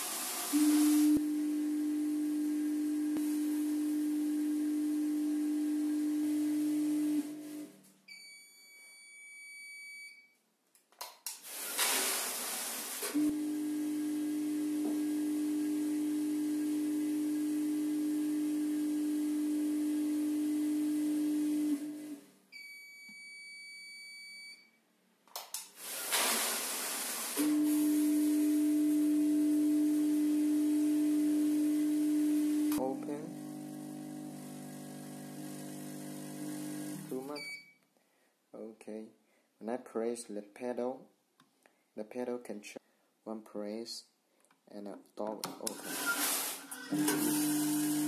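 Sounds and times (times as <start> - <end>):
machine feeder humming: 27.4 - 37.3, 46.8 - 48.0.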